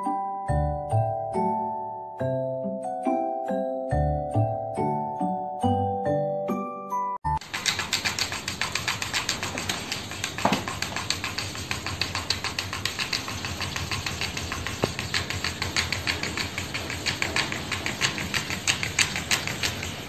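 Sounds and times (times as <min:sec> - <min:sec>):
rapid even clicking: 0:07.4 - 0:20.0.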